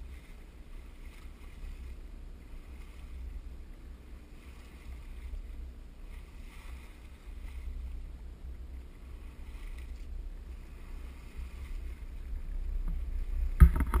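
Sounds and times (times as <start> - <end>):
water streaming past hull: 0.0 - 14.0
loud sharp knocks: 13.6 - 14.0.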